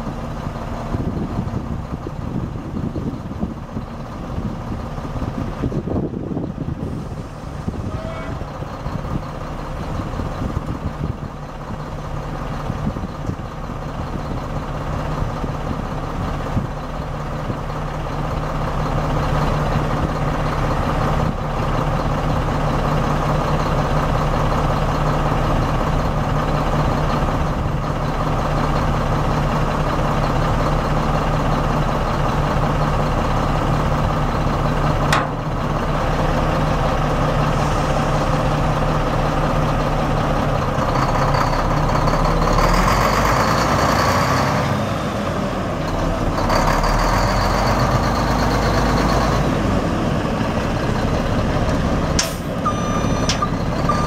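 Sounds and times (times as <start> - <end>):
diesel truck engine idling: 0.0 - 54.0
sharp click: 52.2 - 52.5.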